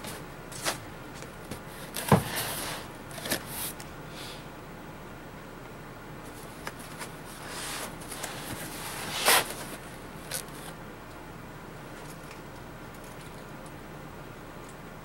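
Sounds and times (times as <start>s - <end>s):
cardboard box scraping: 1.9s - 2.9s, 7.3s - 10.7s.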